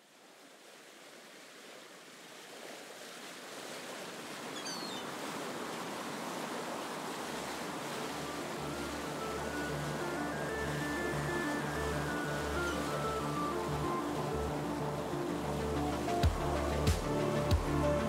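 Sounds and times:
sea waves washing: 0:00.7 - 0:18.0
low music: 0:08.1 - 0:18.0.

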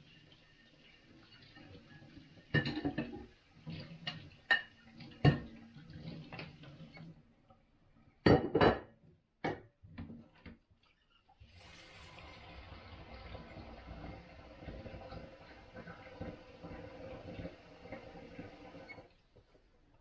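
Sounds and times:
dishes clattering in sink: 0:02.5 - 0:06.6, 0:08.2 - 0:10.6.

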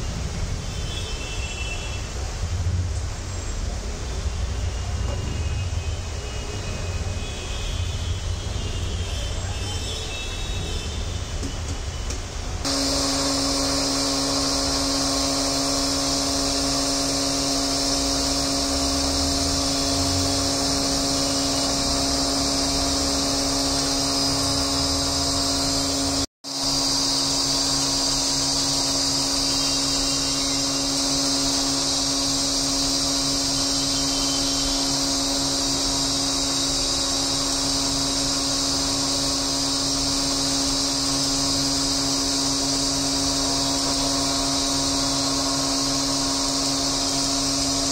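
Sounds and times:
electric motor drone: 0:12.6 - 0:47.9.

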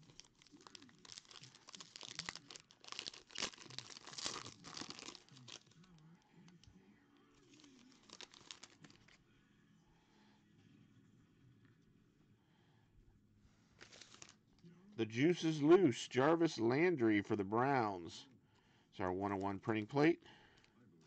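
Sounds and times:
foil wrapper crinkling: 0:00.0 - 0:06.0, 0:07.5 - 0:09.2, 0:13.8 - 0:14.4.

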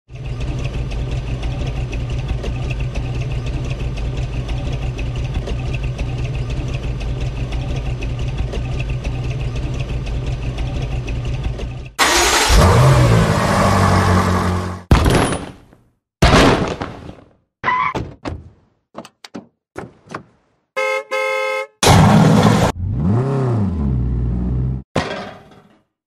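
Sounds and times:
car engine idling: 0:00.1 - 0:12.5.

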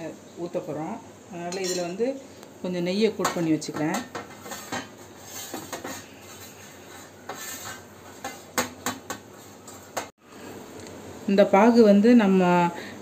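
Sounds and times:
palm rubbing metal plate: 0:04.4 - 0:08.4.

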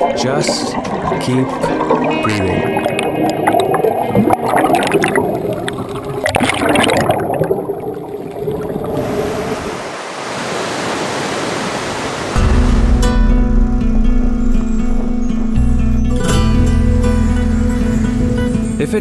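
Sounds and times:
underwater bubbling: 0:00.0 - 0:09.9
sea waves breaking over rocks: 0:00.0 - 0:13.2.

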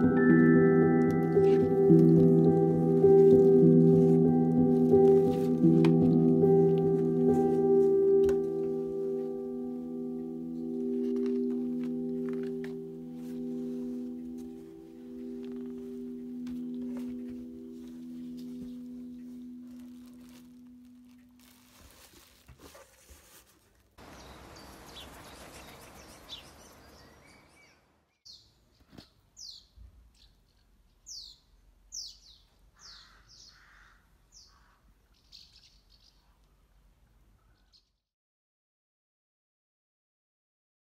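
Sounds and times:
singing bowl ringing tone: 0:00.0 - 0:02.8.

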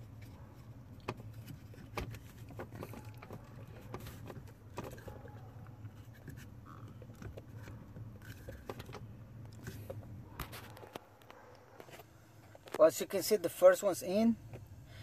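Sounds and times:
pedal cover clicks and knocks: 0:01.0 - 0:05.4, 0:06.3 - 0:09.2.

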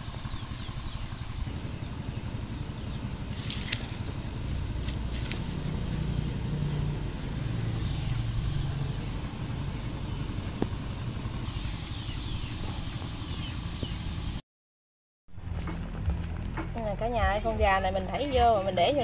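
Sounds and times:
wood fire crackling: 0:01.4 - 0:07.8.

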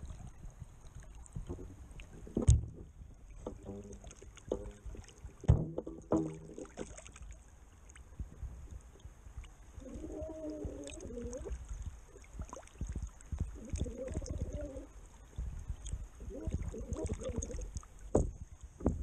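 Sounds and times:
water splashing around fish: 0:00.0 - 0:19.0
low knocks and bumps: 0:01.4 - 0:06.9, 0:18.1 - 0:19.0
muffled wavering warble: 0:09.8 - 0:11.6, 0:13.5 - 0:14.9.

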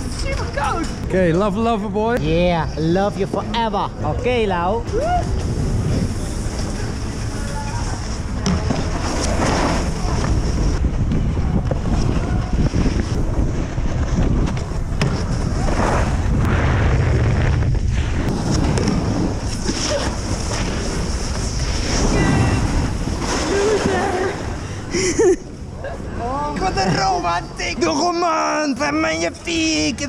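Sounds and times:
wind rumbling on microphone: 0:02.6 - 0:26.6
snowboards scraping over snow: 0:05.4 - 0:24.8.

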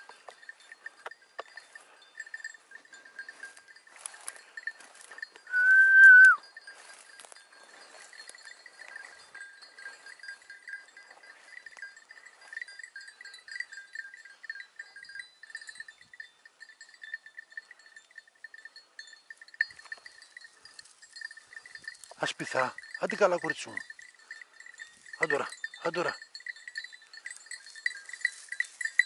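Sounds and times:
small bells jingling: 0:00.0 - 0:29.0
loud whistle: 0:05.5 - 0:06.4.

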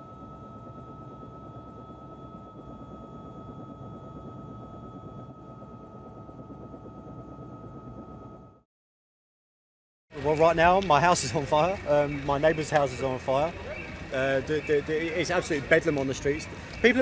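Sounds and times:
helicopter rotor drone: 0:00.0 - 0:08.6, 0:10.1 - 0:17.0
turbine engine high whine: 0:00.0 - 0:08.7, 0:10.2 - 0:17.0.

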